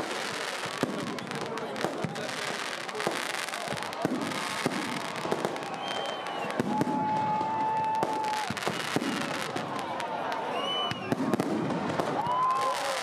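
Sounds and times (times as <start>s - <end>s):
crowd chatter: 0.0s - 13.0s
fireworks bangs and crackles: 0.0s - 13.0s
steady whistling tone: 5.7s - 6.6s, 10.5s - 11.1s.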